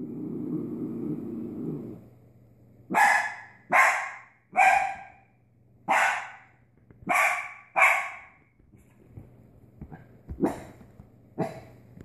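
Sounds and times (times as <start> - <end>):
puppy barking: 2.9 - 8.5, 9.9 - 10.8, 11.4 - 11.7.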